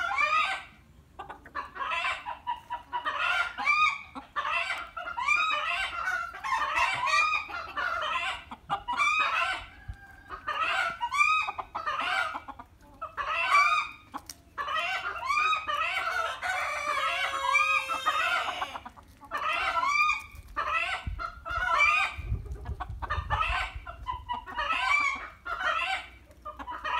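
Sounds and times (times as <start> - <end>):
chicken long drawn-out call: 0.0 - 0.8, 1.6 - 12.5, 13.1 - 14.0, 14.6 - 22.2
chickens clucking: 0.0 - 26.9.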